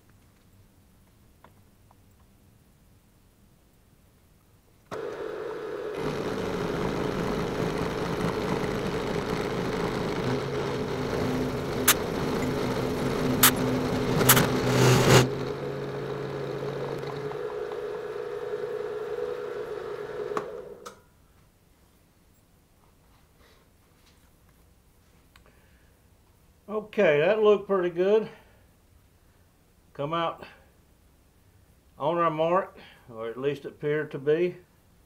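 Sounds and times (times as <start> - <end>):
end mill cutting aluminium: 4.9 - 20.8
milling spindle whine: 4.9 - 20.8
hand drill hum: 4.9 - 20.9
sharp clicks: 11.6 - 14.7.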